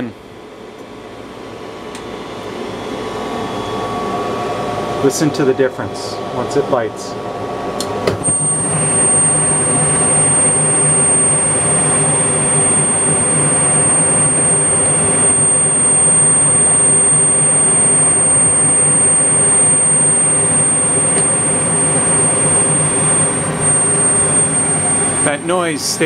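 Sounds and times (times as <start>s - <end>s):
fans rushing: 3.2s - 26.0s
gas burners igniting and burning: 3.8s - 26.0s
high-pitched whistle: 8.3s - 26.0s.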